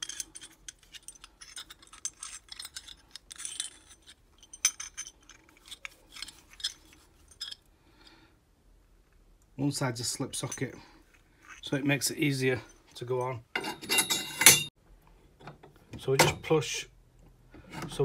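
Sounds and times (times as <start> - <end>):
metal fittings clinking: 0.0 - 7.7, 13.1 - 14.7.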